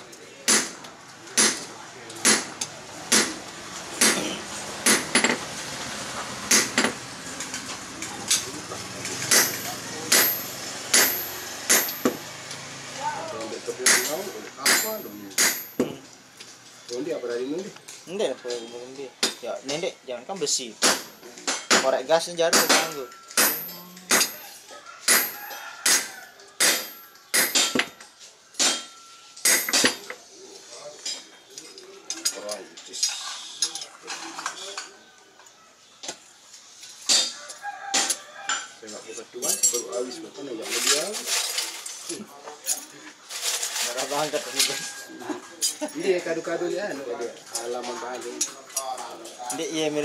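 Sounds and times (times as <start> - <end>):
hammer striking steel on anvil: 0.5 - 0.8, 9.3 - 12.2, 13.8 - 16.0, 22.5 - 24.4, 25.1 - 27.9, 28.6 - 30.0.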